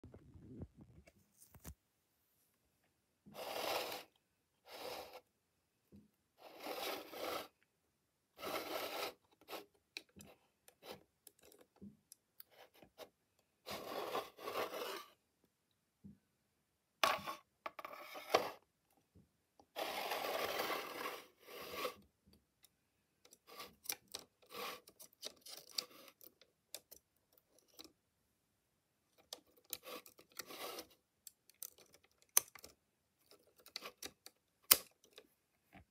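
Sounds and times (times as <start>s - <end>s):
toy model scraping on plastic base: 3.3s - 5.3s, 6.4s - 7.6s, 8.4s - 9.8s, 13.7s - 15.2s, 17.0s - 18.6s, 19.7s - 22.0s, 23.4s - 26.3s, 29.6s - 31.0s.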